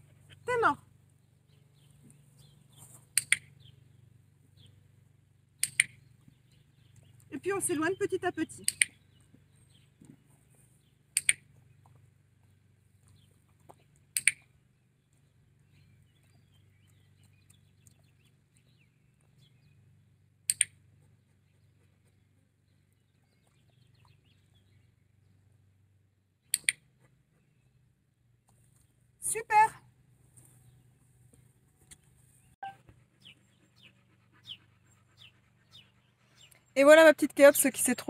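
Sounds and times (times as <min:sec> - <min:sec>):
clicker double clicks: 0:05.6 - 0:06.0.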